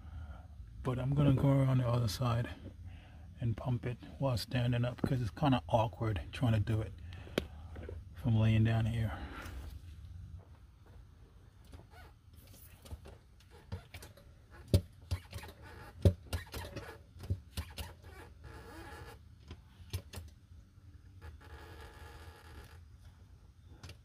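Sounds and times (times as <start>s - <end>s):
knocks and clicks of bucket pump: 12.9s - 17.9s.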